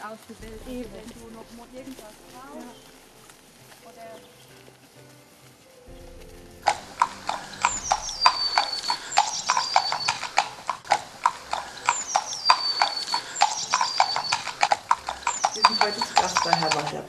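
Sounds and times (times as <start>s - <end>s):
hooves clip-clopping on asphalt: 0.0s - 17.0s
high whistled call: 6.7s - 17.0s.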